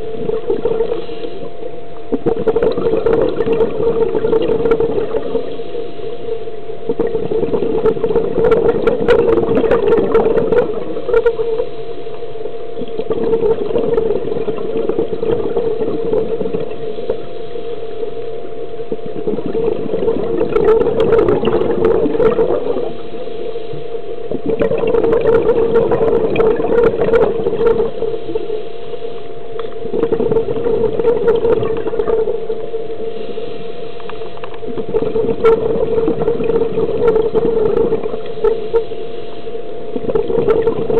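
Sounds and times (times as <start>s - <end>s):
exhaled bubbles from regulator: 0.0s - 40.9s
steady hum: 0.0s - 40.9s.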